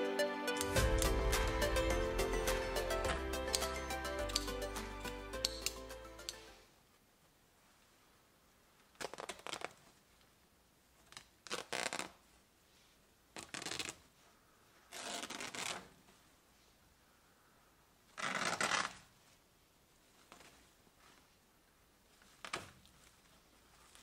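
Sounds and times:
coarse fabric ripping: 8.9 - 10.1, 11.0 - 12.4, 13.3 - 14.2, 14.9 - 16.2, 18.1 - 19.4, 22.2 - 24.0.

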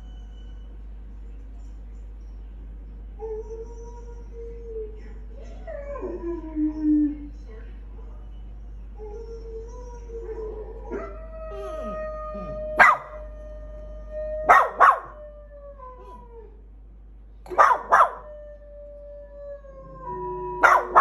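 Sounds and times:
dogs howling: 9.0 - 16.6, 17.5 - 21.0
dog barking: 12.8 - 13.2, 14.5 - 15.2, 17.5 - 18.3, 20.6 - 21.0.

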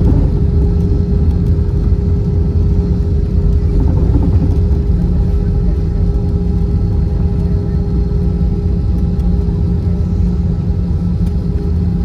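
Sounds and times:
aircraft wheels and engines rumbling: 0.0 - 12.0
steady cabin hum: 0.0 - 12.0.

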